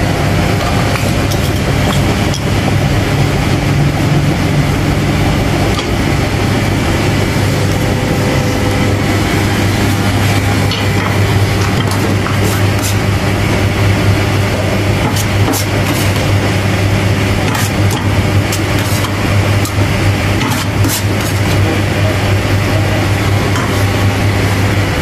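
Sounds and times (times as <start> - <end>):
low engine hum: 0.0 - 15.1.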